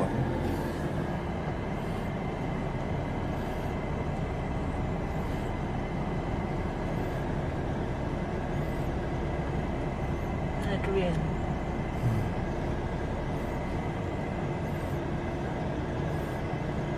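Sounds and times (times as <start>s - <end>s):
car engine and road noise: 0.0s - 16.9s.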